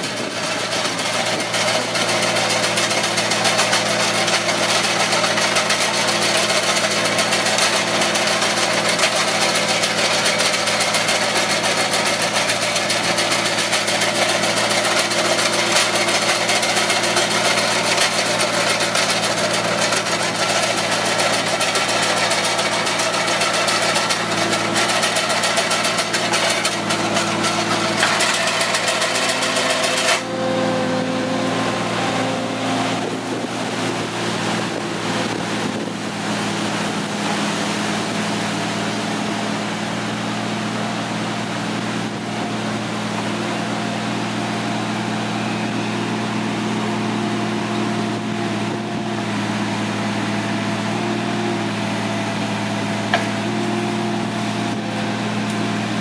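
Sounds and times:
hedge trimmer cutting branches: 0:00.0 - 0:49.4
diesel engine running: 0:00.0 - 0:56.0.

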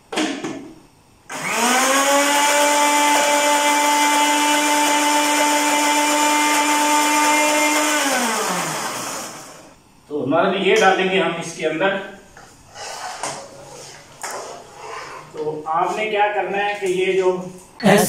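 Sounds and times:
blender motor running: 0:01.3 - 0:09.7.

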